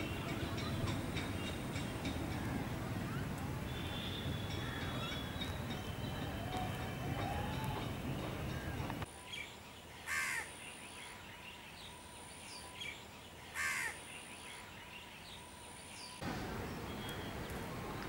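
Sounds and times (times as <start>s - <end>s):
crow cawing: 10.1s - 10.5s, 13.6s - 14.0s.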